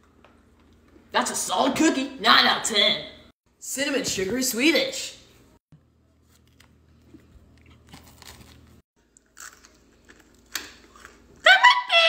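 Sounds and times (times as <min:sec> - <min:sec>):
chewing and crunching snack: 0:06.1 - 0:11.5.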